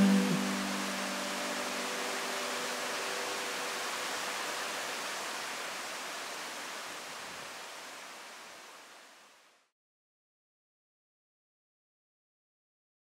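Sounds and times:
mountain stream rushing: 0.0 - 9.7.

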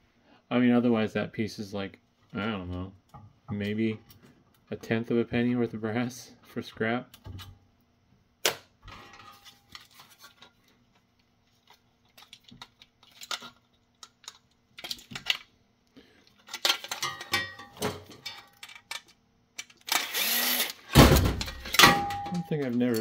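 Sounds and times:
clicks and metallic clatter: 16.4 - 20.1, 21.3 - 23.0.

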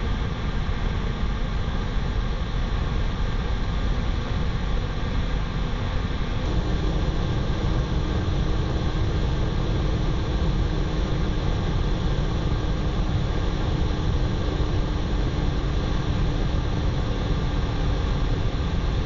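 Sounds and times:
constant low hum: 0.0 - 19.0
jet noise and rushing airflow: 5.3 - 19.0.

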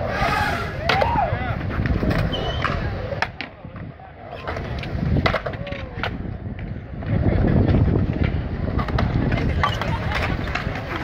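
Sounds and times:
skateboard wheels rolling on concrete: 0.0 - 11.0
skateboards clacking on concrete: 0.0 - 11.0.

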